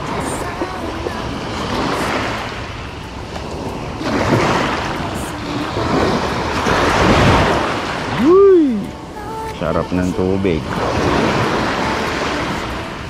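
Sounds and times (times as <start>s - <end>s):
wind buffeting microphone: 0.0s - 9.9s
waves washing onto beach: 0.0s - 13.0s.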